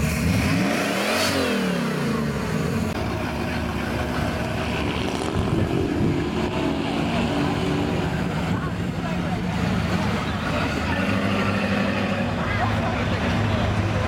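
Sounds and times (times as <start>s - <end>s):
supercharged car engine revving: 0.0s - 8.7s.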